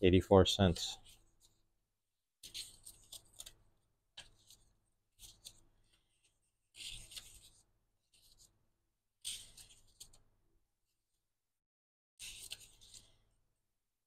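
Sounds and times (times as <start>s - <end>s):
paper pages flipping: 2.4s - 8.6s, 9.2s - 10.3s, 12.2s - 13.4s.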